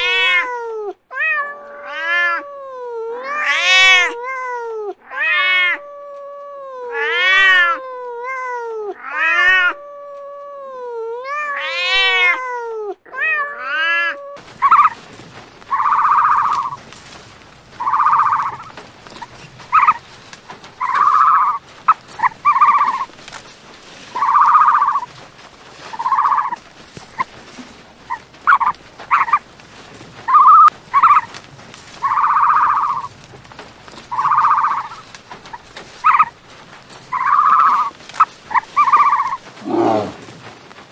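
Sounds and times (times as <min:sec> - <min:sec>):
cats meowing: 0:00.0 - 0:16.9, 0:17.7 - 0:27.4, 0:28.0 - 0:29.4, 0:30.2 - 0:36.4, 0:37.0 - 0:40.2
steady hiss: 0:14.4 - 0:40.9.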